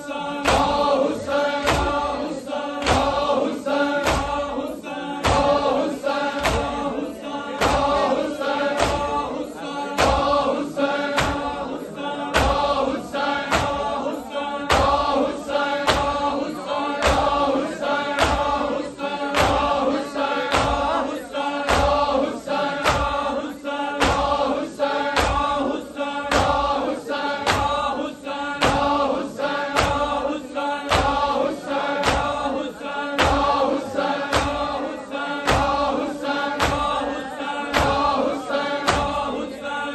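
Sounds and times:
men chanting in unison: 0:00.0 - 0:39.9
hands slapping chests: 0:00.4 - 0:02.1, 0:02.8 - 0:04.5, 0:05.2 - 0:06.8, 0:08.7 - 0:09.2, 0:11.0 - 0:11.6, 0:12.4 - 0:13.9, 0:15.8 - 0:16.3, 0:17.0 - 0:17.4, 0:18.0 - 0:18.6, 0:19.2 - 0:20.9, 0:21.6 - 0:23.3, 0:24.0 - 0:25.6, 0:26.3 - 0:27.9, 0:28.6 - 0:30.2, 0:30.9 - 0:32.6, 0:33.2 - 0:34.8, 0:35.4 - 0:37.0, 0:37.7 - 0:39.3.

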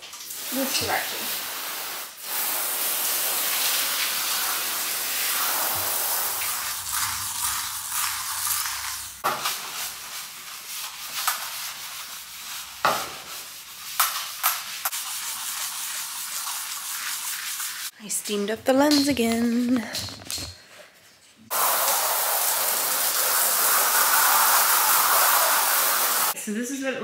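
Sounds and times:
hose spraying water on metal: 0:00.0 - 0:17.9, 0:21.5 - 0:26.4
brush scrubbing metal tank: 0:00.5 - 0:17.9.

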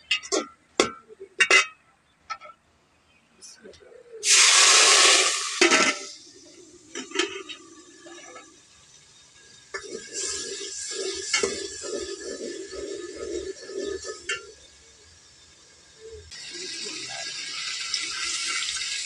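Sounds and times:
steam hissing: 0:04.2 - 0:19.0
stirring and scraping in pot: 0:05.6 - 0:17.3.

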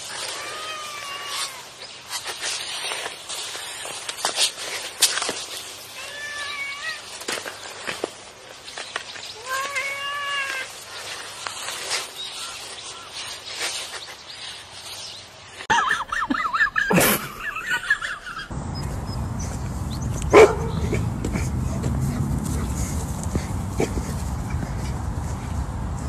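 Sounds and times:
cat meowing: 0:00.3 - 0:01.7, 0:06.0 - 0:07.1, 0:09.4 - 0:10.8
wind on microphone: 0:18.6 - 0:26.0
dog barking: 0:20.3 - 0:21.1.

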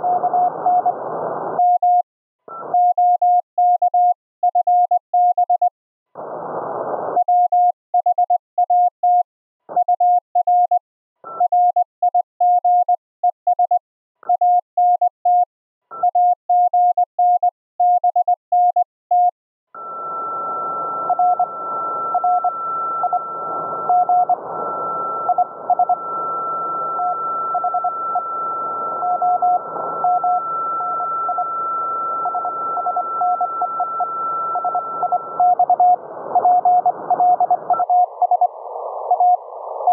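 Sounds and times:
constant high whistle: 0:19.8 - 0:39.9
morse code tone: 0:21.0 - 0:38.5
radio band hiss: 0:36.0 - 0:39.9.

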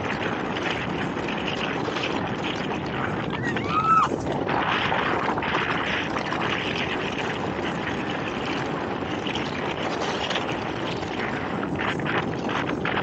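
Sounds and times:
water rushing along boat hull: 0:00.0 - 0:13.0
wind buffeting microphone: 0:00.0 - 0:13.0.

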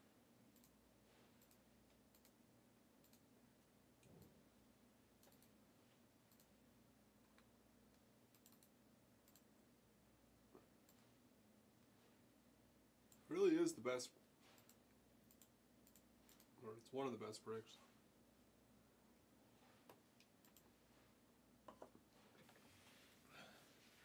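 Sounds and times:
mouse and keyboard clicks: 0:07.3 - 0:09.5.

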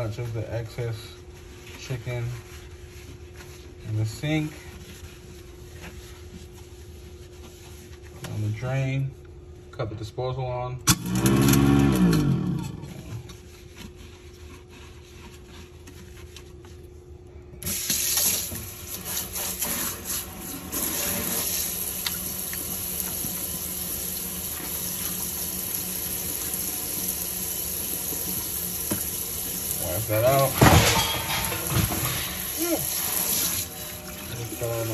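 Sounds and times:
faucet water running into sink: 0:17.7 - 0:30.5, 0:31.5 - 0:34.9.

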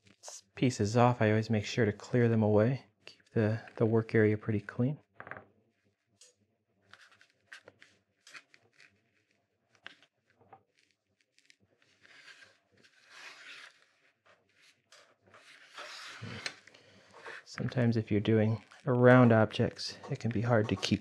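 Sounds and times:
carving knife scraping wood: 0:11.4 - 0:19.4, 0:20.0 - 0:21.0.

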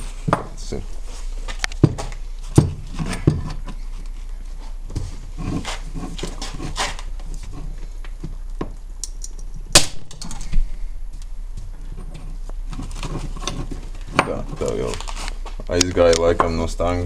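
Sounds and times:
loud sharp metal crack: 0:09.7 - 0:10.5.

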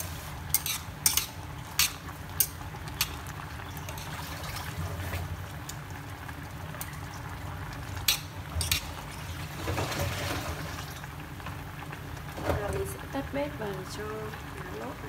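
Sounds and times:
chopsticks stirring soup: 0:00.0 - 0:05.2, 0:08.0 - 0:09.2
soup bubbling at a boil: 0:00.0 - 0:15.0.

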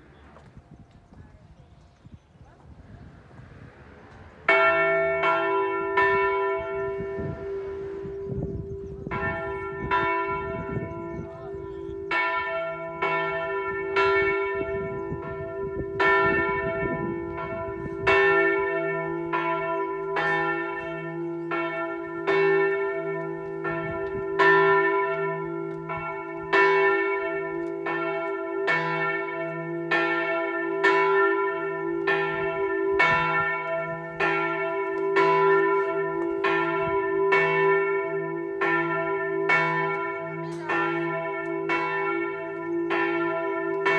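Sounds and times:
large bell ringing: 0:03.8 - 0:43.9
low bell hum: 0:03.9 - 0:28.1.

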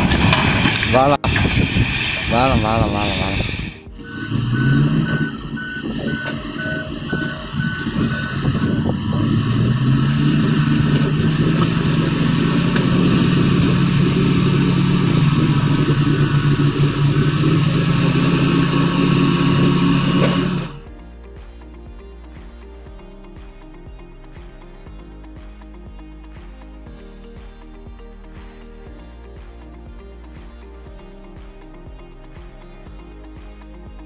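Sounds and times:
heavy diesel engines under load: 0:00.0 - 0:20.8
back-up alarm beeping: 0:03.8 - 0:20.8.

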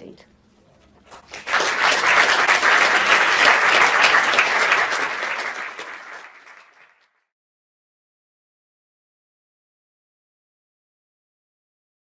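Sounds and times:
audience applauding: 0:01.1 - 0:07.2.

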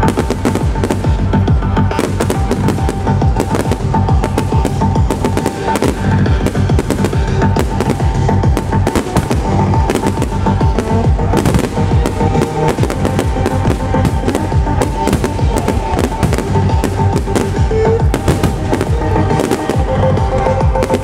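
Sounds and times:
fireworks bursting with bangs: 0:00.0 - 0:21.0
trance music over speakers: 0:00.0 - 0:21.0.

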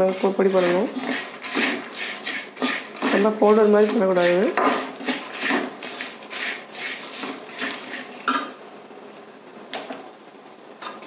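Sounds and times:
ladle scraping a pan: 0:00.0 - 0:08.6.

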